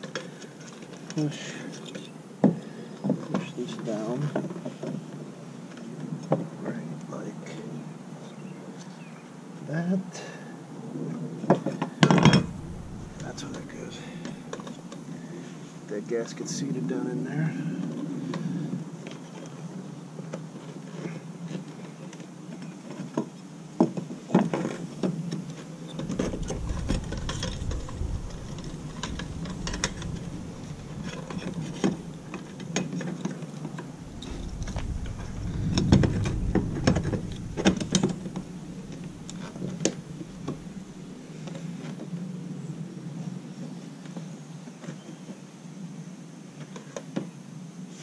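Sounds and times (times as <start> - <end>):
low rumble: 12.2 - 15.1, 25.8 - 41.6.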